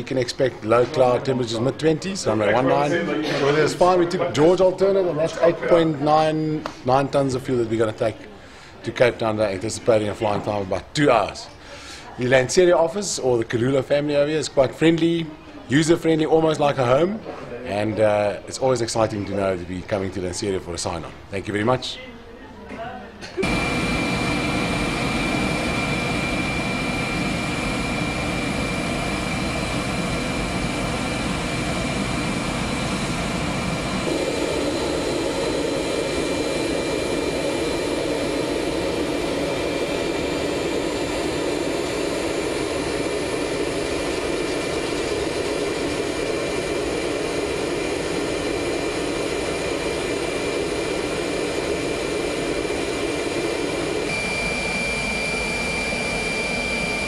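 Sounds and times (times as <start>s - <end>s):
jet turbine whine: 23.4s - 57.0s.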